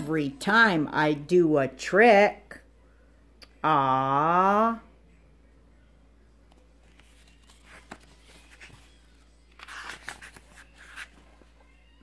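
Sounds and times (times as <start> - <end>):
paper pages rustling: 6.5 - 11.7
paper crinkling: 6.8 - 11.6.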